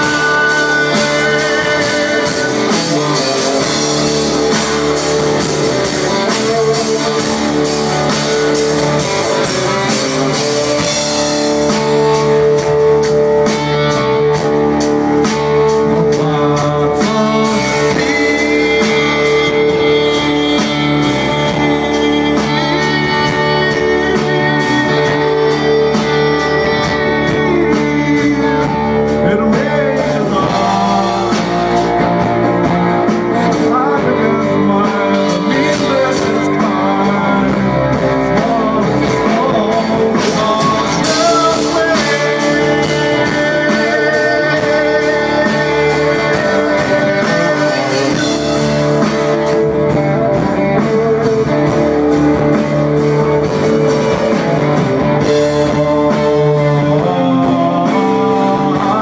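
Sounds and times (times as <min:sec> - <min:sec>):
drum kit: 0:00.0 - 0:59.0
electric guitar: 0:00.0 - 0:59.0
fiddle melody: 0:17.4 - 0:56.7.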